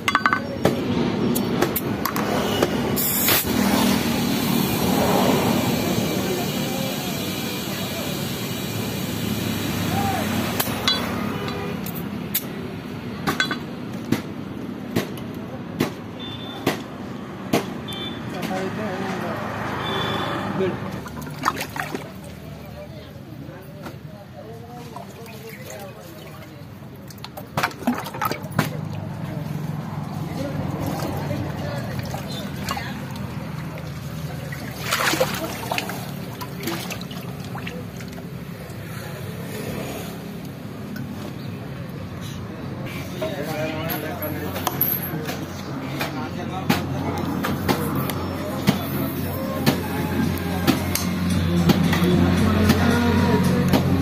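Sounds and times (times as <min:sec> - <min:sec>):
sharp metallic knocks: 0:00.0 - 0:00.8, 0:10.6 - 0:11.6
water splash: 0:21.0 - 0:22.6, 0:30.7 - 0:38.4
water trickling: 0:21.0 - 0:22.8, 0:30.8 - 0:38.9.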